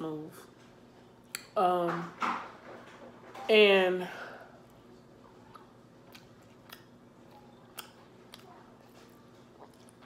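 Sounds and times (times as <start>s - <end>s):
quiet chewing: 4.6s - 10.0s.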